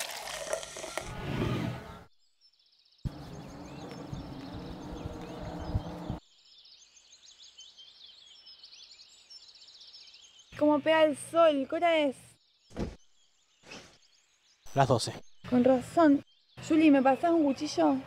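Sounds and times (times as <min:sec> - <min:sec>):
cola fizzing into a glass: 0:00.0 - 0:01.1
outdoor noise: 0:00.0 - 0:18.0
small birds chirping: 0:00.8 - 0:18.0.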